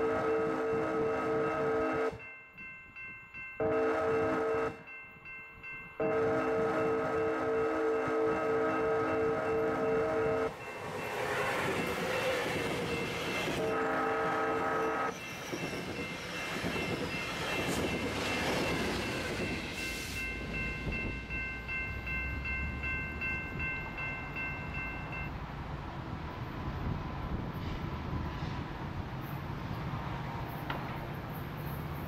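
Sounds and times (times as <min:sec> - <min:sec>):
train horn: 0:00.0 - 0:02.2, 0:03.6 - 0:04.9, 0:06.0 - 0:10.5, 0:12.9 - 0:15.1
train passing at speed: 0:00.0 - 0:32.0
bell ringing: 0:02.2 - 0:13.8, 0:14.8 - 0:25.3.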